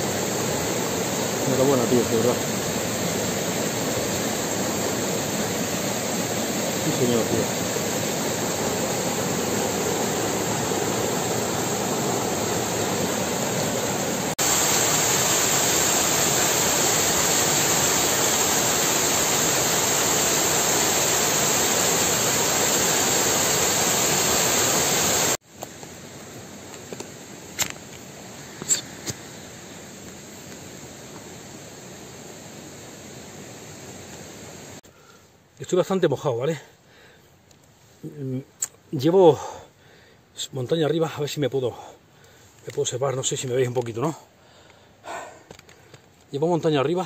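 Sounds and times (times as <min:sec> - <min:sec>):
quiet hiss: 0:25.1 - 0:47.0.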